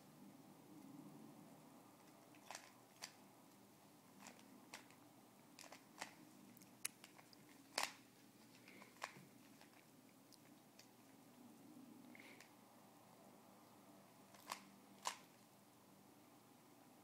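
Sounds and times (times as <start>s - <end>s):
puzzle cube twisting clicks: 2.4s - 3.2s, 5.6s - 6.2s, 6.9s - 9.8s, 14.3s - 15.4s.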